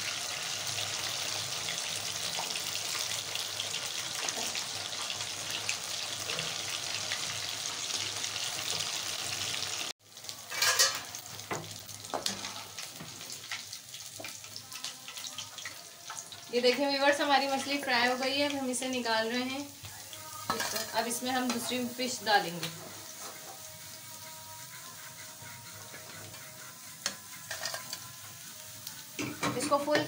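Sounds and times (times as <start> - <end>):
fish sizzling in hot oil: 0.0 - 30.0
metal spoon scraping a pan: 10.5 - 11.2, 20.3 - 30.0.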